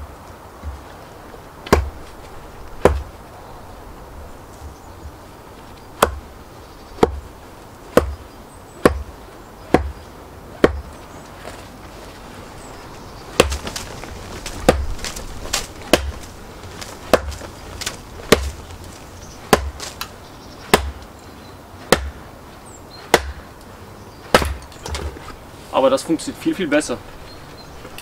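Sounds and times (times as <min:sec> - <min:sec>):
mallet striking wood-splitting blade: 0:24.3 - 0:24.6.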